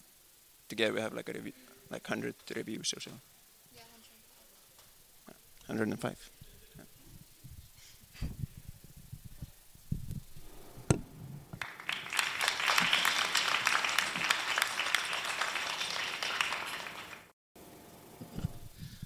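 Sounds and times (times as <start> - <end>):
audience clapping: 11.6 - 17.4.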